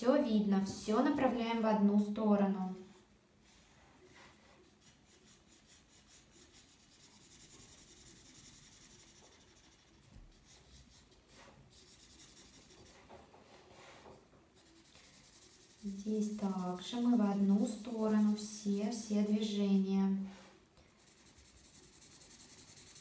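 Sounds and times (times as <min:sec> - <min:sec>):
marker scratching on paper: 0:04.1 - 0:19.6, 0:20.4 - 0:23.0.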